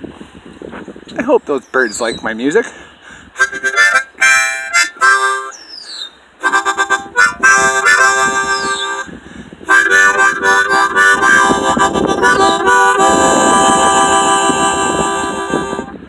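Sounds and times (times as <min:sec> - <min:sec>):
harmonica chords: 0:03.4 - 0:05.6, 0:06.4 - 0:16.0
bird whistled calls: 0:05.4 - 0:06.2, 0:08.4 - 0:09.1.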